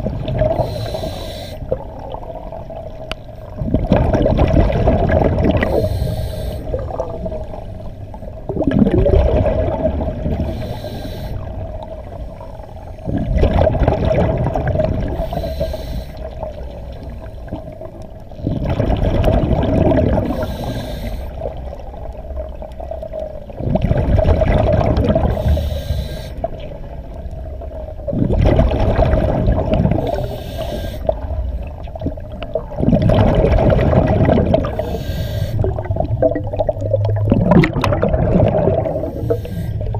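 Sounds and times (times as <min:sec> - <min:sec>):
diver breathing through regulator: 0:00.5 - 0:01.8, 0:05.6 - 0:07.1, 0:10.3 - 0:13.3, 0:15.1 - 0:16.4, 0:20.2 - 0:21.6, 0:25.2 - 0:26.6, 0:29.9 - 0:31.3, 0:34.6 - 0:35.8, 0:38.6 - 0:39.9
bubbling exhaust: 0:08.4 - 0:10.8, 0:23.2 - 0:25.8, 0:31.0 - 0:35.0, 0:35.6 - 0:39.9.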